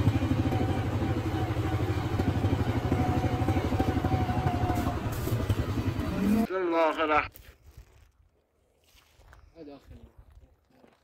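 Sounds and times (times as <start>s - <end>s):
motorcycle engine running: 0.0s - 6.5s.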